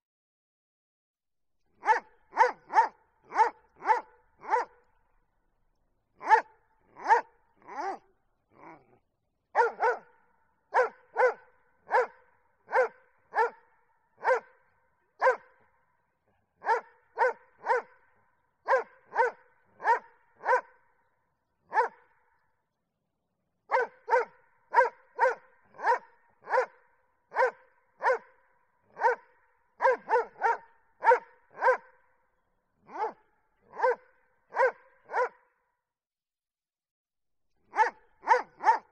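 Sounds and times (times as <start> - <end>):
dog barking: 1.8 - 4.9, 6.2 - 15.8, 16.6 - 21.0, 21.6 - 22.5, 23.7 - 32.1, 32.8 - 35.8, 37.7 - 38.9.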